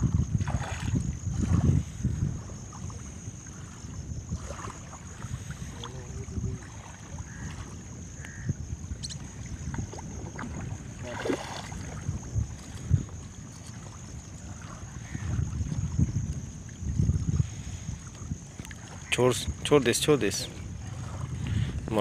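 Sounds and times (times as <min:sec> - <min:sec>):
water lapping at bank: 0:00.0 - 0:22.0
wind rumbling on microphone: 0:00.0 - 0:22.0
small knocks and splashes: 0:00.4 - 0:01.7, 0:03.6 - 0:08.3, 0:09.0 - 0:16.0, 0:18.0 - 0:19.2.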